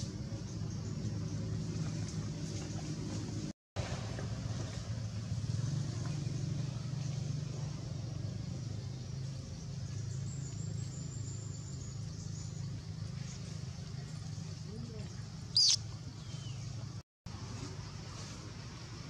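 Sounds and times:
low motor-like hum: 0.0 - 19.0.

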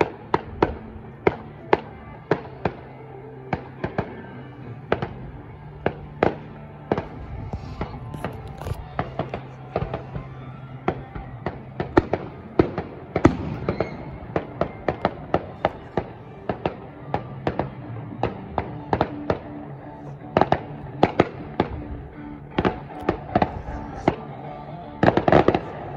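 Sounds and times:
fireworks bangs and pops: 4.9 - 19.5.

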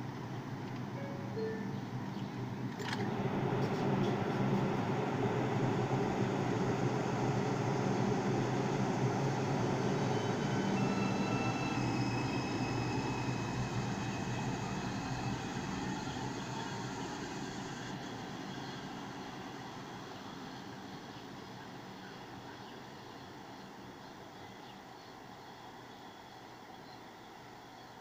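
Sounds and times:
subway train motors and wheels: 0.0 - 28.0
high propulsion whine: 0.8 - 22.5.

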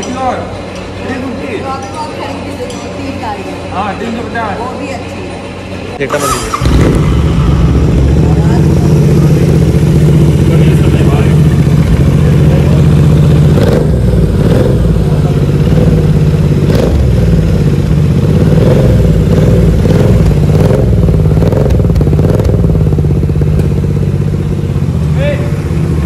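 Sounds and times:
motorcycle engine revving: 5.4 - 26.0.

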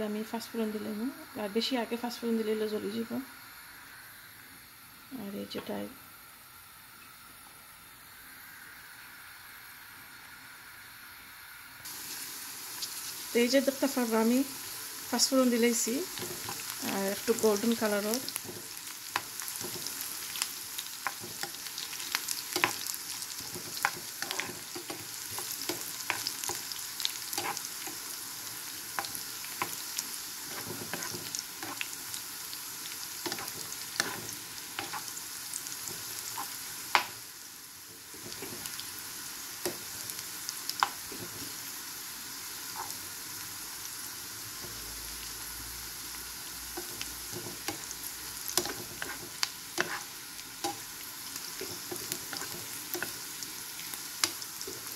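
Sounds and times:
food sizzling in hot oil: 0.0 - 7.3, 7.9 - 54.9
spatula stirring: 16.1 - 32.0, 33.1 - 35.2, 35.8 - 37.1, 37.9 - 38.8, 46.7 - 54.9.

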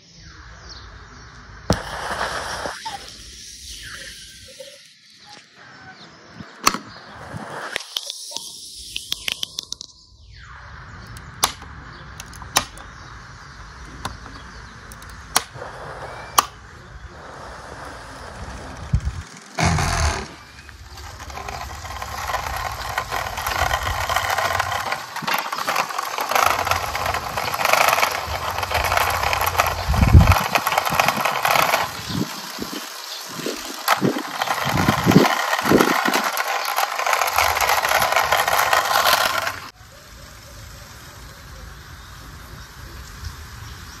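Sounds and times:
toy car wheels rolling: 1.7 - 5.5, 12.2 - 12.8, 14.0 - 43.2.

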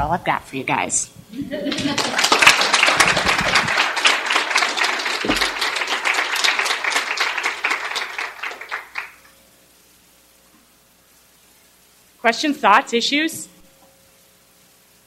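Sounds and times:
audience applauding: 1.7 - 9.2.

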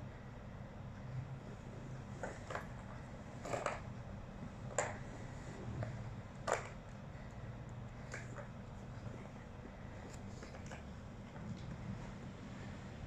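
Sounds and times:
low steady hum: 0.0 - 13.0
plastic cat toy clacking: 6.4 - 6.9.

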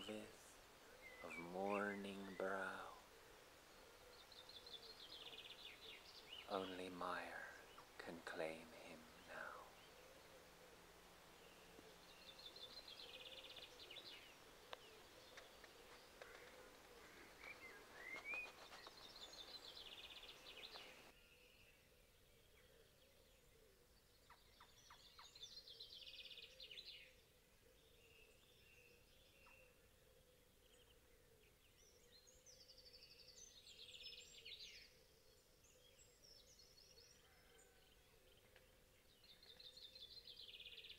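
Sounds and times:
songbird trilling: 3.8 - 21.1.

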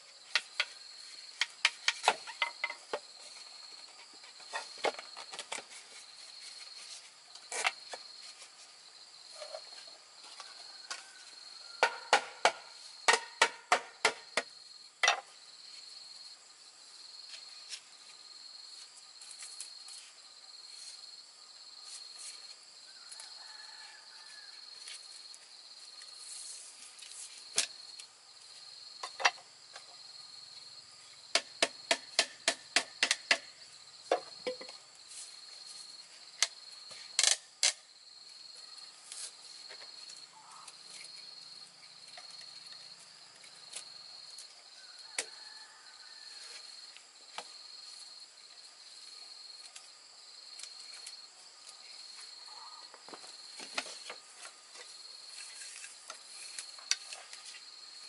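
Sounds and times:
bamboo pieces knocking: 0.3 - 3.3, 11.8 - 15.3, 29.0 - 29.9, 31.3 - 34.8.

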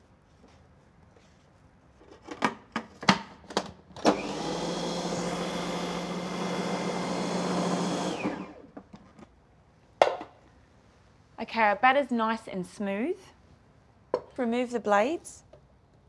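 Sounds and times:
food processor motor running: 4.0 - 8.7.

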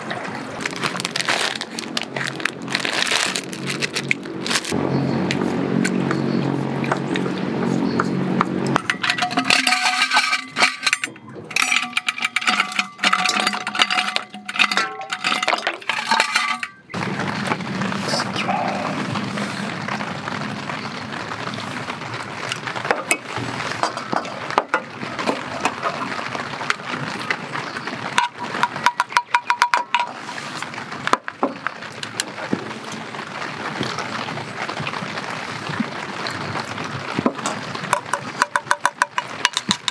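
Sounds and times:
ice and chopsticks clinking in bowl: 8.8 - 16.9, 28.2 - 30.1, 38.0 - 39.9
light rain hiss: 17.0 - 28.7.

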